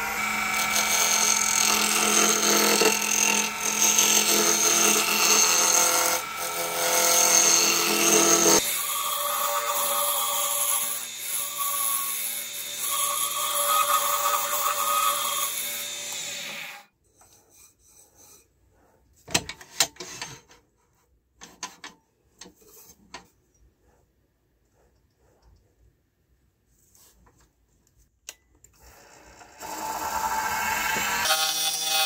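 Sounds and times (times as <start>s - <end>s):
turning tool cutting wood: 0.0s - 18.2s, 28.8s - 32.0s.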